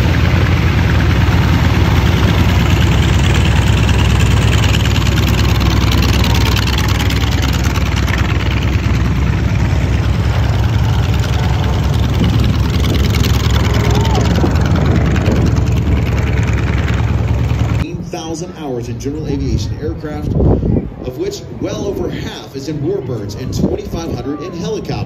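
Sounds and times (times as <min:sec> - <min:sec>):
propeller aircraft engine drone: 0:00.0 - 0:18.1.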